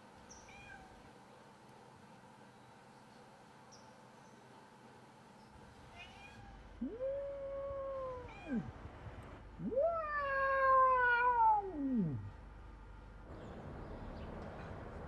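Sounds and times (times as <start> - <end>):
cat meowing: 5.9 - 8.7, 9.6 - 12.3.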